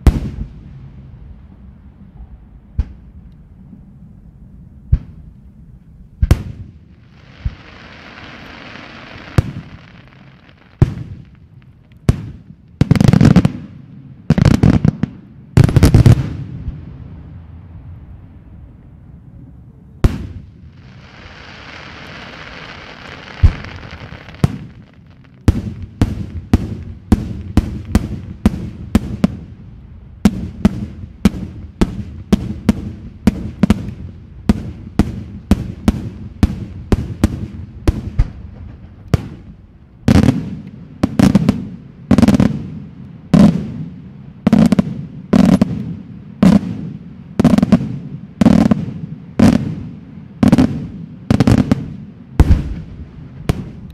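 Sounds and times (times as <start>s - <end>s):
firework hissing: 7.0s - 11.0s, 20.8s - 25.3s
firework bang: 20.0s - 24.8s.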